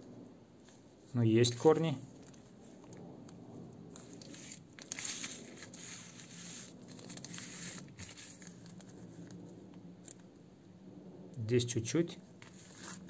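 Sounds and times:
plastic bags crinkling: 4.1 - 9.4.

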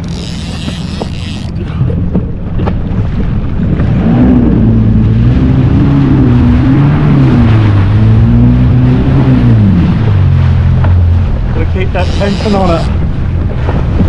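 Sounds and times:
water rushing past hull: 0.0 - 14.0
jet ski engine revving: 3.8 - 13.4.

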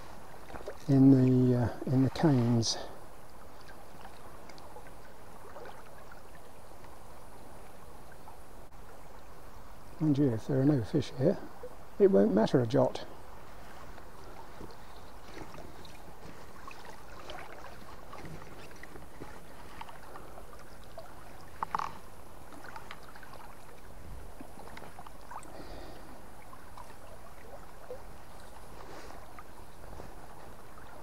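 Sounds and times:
river water gurgling: 0.0 - 31.0
faint clicks: 4.4 - 4.7.

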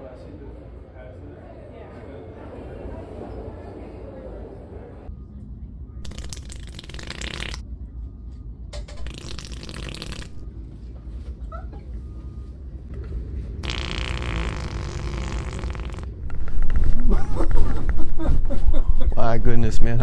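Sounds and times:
fake fart noises from cup: 6.0 - 7.6, 9.0 - 10.4, 13.6 - 16.8.

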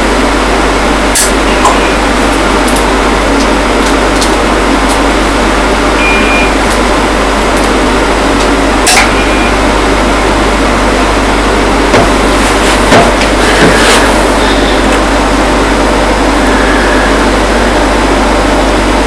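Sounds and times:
steady loud hiss: 0.0 - 19.0
short high beep: 6.0 - 6.6.

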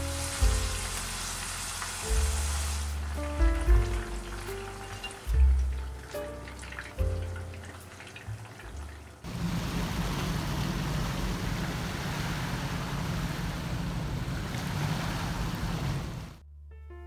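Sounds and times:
vegetables sizzling in oil: 0.0 - 15.8
sea waves washing: 9.3 - 16.4.

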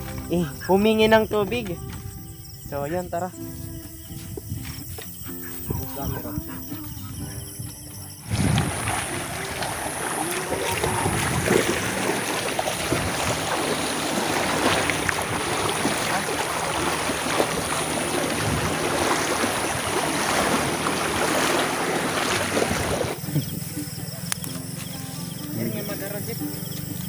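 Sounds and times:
water sloshing and splashing: 8.0 - 25.0.

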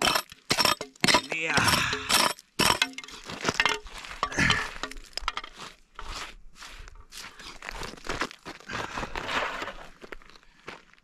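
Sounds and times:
hands scraping gravel: 2.2 - 11.0.

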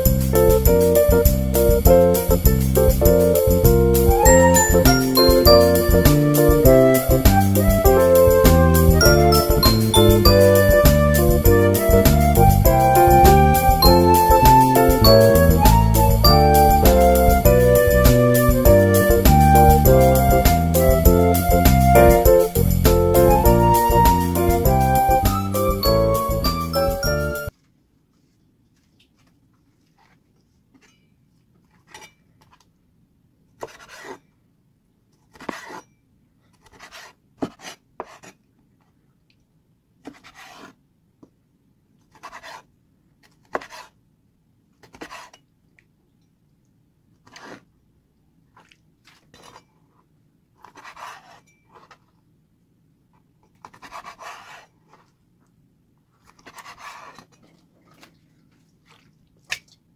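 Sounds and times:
cleaver scraping: 33.6 - 34.3, 35.3 - 38.4, 40.0 - 40.8, 42.1 - 44.0, 44.8 - 45.4, 47.2 - 47.7, 50.6 - 52.1, 53.6 - 55.1, 56.2 - 57.4.

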